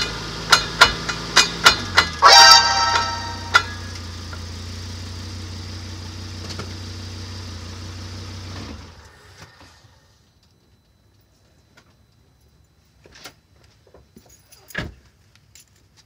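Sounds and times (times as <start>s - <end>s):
vehicle engine idling: 3.0s - 10.0s.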